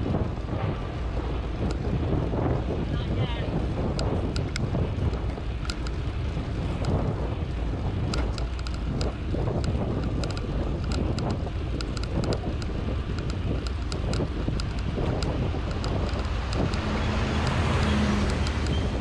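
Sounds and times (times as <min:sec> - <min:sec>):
wind buffeting microphone: 0:00.0 - 0:19.0
light irregular clicks: 0:01.6 - 0:01.9, 0:03.8 - 0:07.1, 0:07.9 - 0:19.0.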